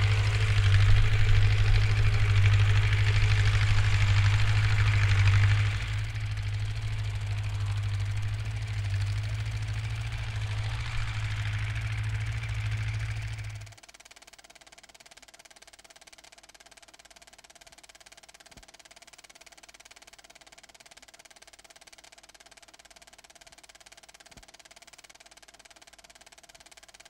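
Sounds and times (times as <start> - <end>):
tractor engine running: 0.0 - 13.8.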